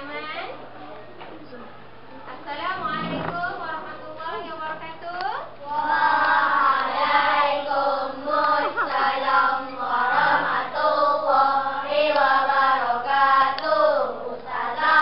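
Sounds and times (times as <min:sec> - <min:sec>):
children singing together: 0:05.7 - 0:15.0.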